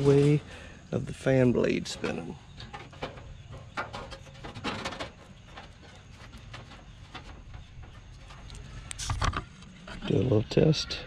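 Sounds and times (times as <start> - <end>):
metal panel knocks and rattles: 1.8 - 9.5.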